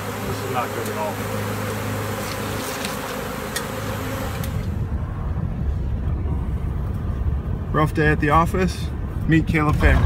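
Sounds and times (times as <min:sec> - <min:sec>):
bee swarm buzzing: 0:00.0 - 0:05.0
car driving heard from inside: 0:04.5 - 0:10.0.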